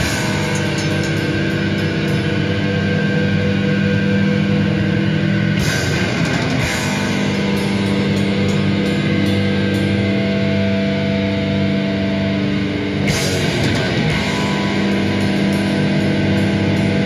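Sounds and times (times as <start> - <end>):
cymbal crash: 0.0 - 3.1, 5.6 - 10.6
grindcore band playing: 0.0 - 11.8, 12.4 - 17.0.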